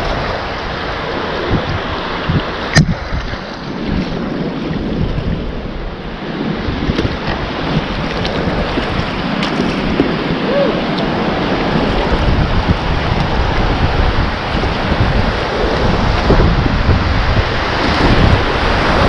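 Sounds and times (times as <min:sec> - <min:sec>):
paddle strokes splashing: 0:00.0 - 0:19.0
wind buffeting microphone: 0:00.0 - 0:19.0
river rapids rushing: 0:05.7 - 0:19.0.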